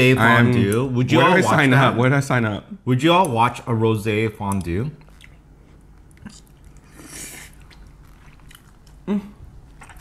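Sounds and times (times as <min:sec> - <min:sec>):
person humming mm: 0:09.0 - 0:09.4.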